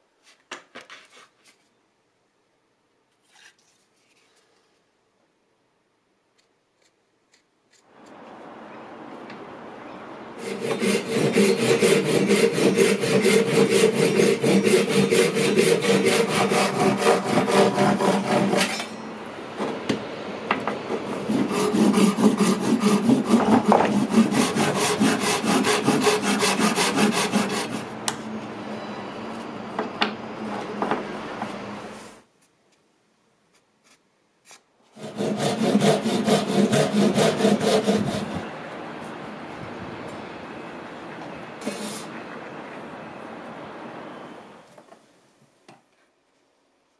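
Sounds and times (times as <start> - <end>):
hand saw cutting: 10.4 - 19.0, 21.1 - 27.9, 33.9 - 38.4.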